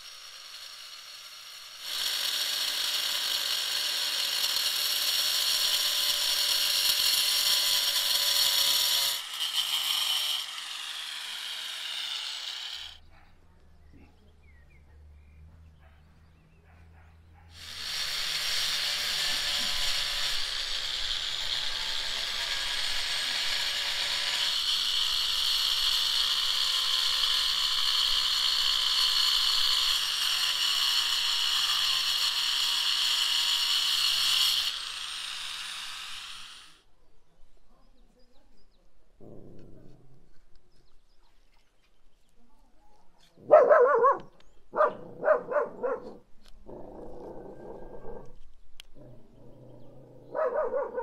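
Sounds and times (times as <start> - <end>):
power tool motor whining: 0.0 - 13.0, 17.6 - 36.8.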